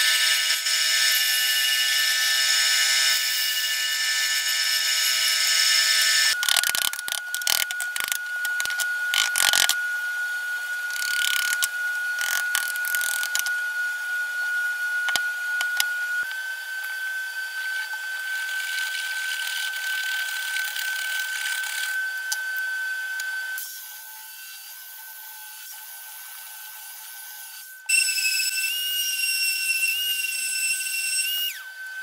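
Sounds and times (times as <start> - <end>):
belt sander whining: 6.1 - 23.6.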